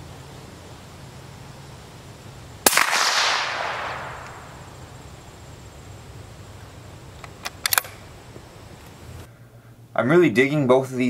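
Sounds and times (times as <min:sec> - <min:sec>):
suppressed rifle shot with echo: 0:02.6 - 0:04.8.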